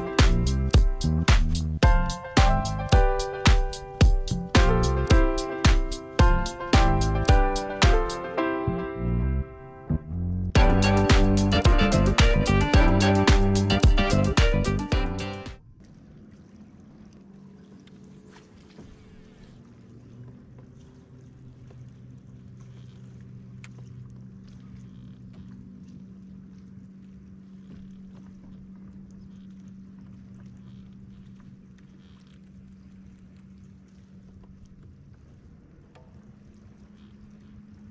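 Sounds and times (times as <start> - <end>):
light water noise: 0.0 - 9.5, 10.5 - 37.9
kayak drive humming: 0.0 - 37.9
faint ticks: 21.6 - 37.9.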